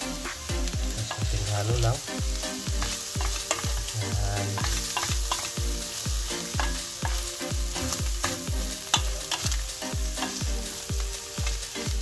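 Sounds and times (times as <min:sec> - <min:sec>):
meat sizzling in a pot: 0:00.0 - 0:12.0
wooden spatula knocking: 0:03.2 - 0:03.9, 0:04.6 - 0:05.5, 0:08.9 - 0:09.6.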